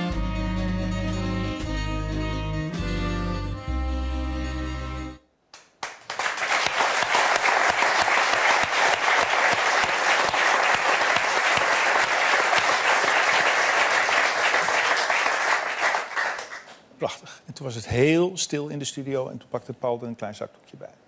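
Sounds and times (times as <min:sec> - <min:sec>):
audience applauding: 0:05.6 - 0:16.8.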